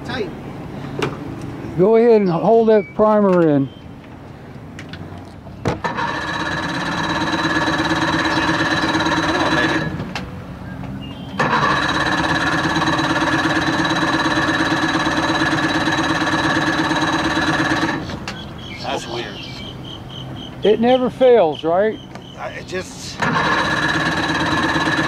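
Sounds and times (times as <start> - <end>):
outboard engine electric starter cranking: 5.7 - 10.1, 11.4 - 18.5, 23.2 - 25.0.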